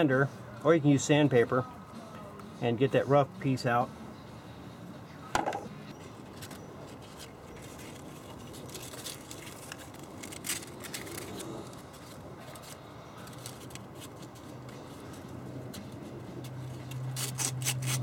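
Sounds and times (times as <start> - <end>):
sandpaper scraping plastic pipe: 17.1 - 18.0.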